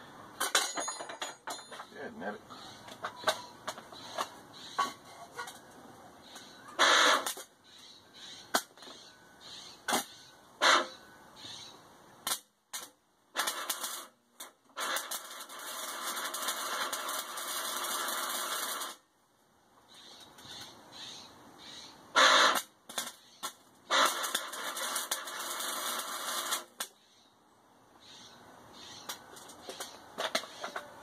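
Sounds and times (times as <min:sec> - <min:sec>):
welder arc crackling: 0:12.2 - 0:19.0, 0:22.2 - 0:27.0.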